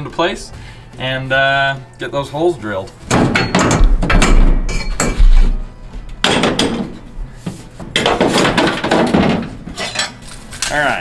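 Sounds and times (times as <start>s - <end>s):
metal clattering on metal floor: 7.8s - 10.8s.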